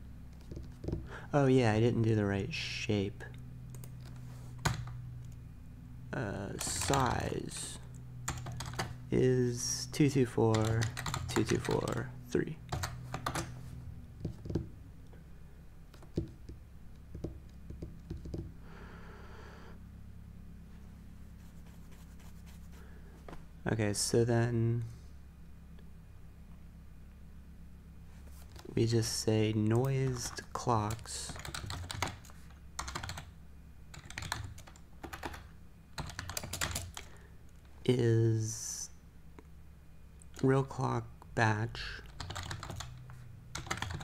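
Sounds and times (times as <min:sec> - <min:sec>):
low steady hum: 0:00.0 - 0:44.0
typing on computer keyboard: 0:08.3 - 0:08.9, 0:10.5 - 0:12.0, 0:12.7 - 0:13.5, 0:17.1 - 0:18.5, 0:30.1 - 0:33.3, 0:33.9 - 0:37.1, 0:42.1 - 0:43.0, 0:43.6 - 0:44.0
faint rubbing hiss: 0:20.7 - 0:23.5.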